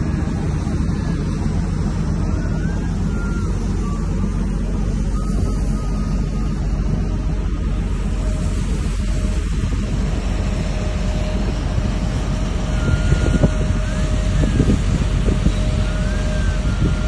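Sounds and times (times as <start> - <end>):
ship machinery rumble: 0.0 - 17.0
wind buffeting microphone: 0.0 - 17.0.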